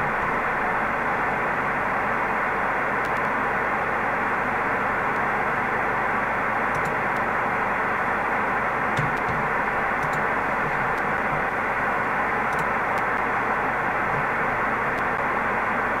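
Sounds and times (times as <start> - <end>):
radio static hiss: 0.0 - 16.0.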